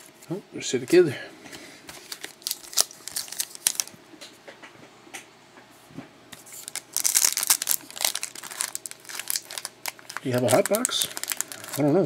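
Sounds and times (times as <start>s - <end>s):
card pack wrapper crinkling: 1.9s - 4.0s, 6.5s - 12.0s
cards clicking and rustling: 6.6s - 12.0s.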